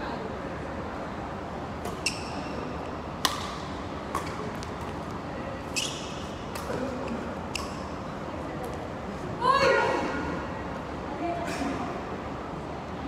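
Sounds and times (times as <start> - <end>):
rackets hitting shuttlecock: 3.2 - 5.1, 6.2 - 8.0.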